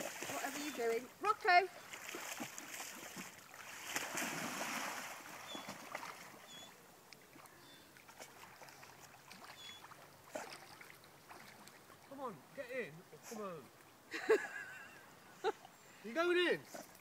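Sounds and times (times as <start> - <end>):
dog splashing in water: 0.0 - 0.9, 1.8 - 6.7
water lapping: 0.0 - 16.1.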